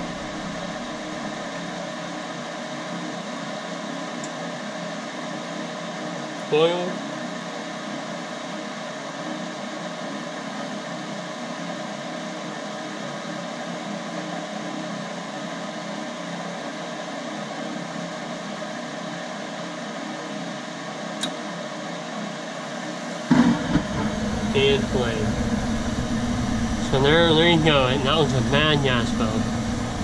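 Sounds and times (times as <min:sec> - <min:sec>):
gas burners firing: 0:00.0 - 0:01.6, 0:23.2 - 0:30.0
blower low rumble: 0:00.0 - 0:02.2, 0:22.7 - 0:30.0
furnace inducer motor humming: 0:00.0 - 0:30.0.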